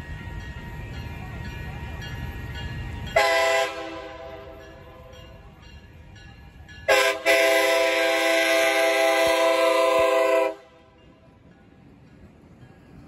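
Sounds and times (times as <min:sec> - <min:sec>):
locomotive air horn blasts: 0:03.2 - 0:04.5, 0:06.9 - 0:10.9.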